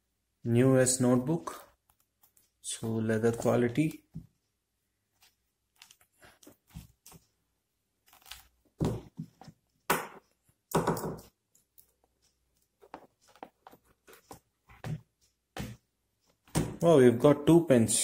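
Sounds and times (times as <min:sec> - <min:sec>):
hands rubbing notebook: 0:12.7 - 0:14.8.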